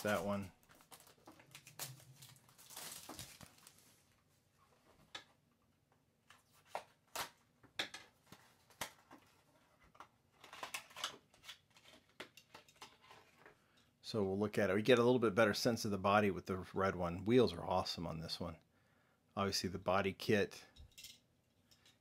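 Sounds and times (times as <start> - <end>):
packaging rustle: 0.0 - 4.2.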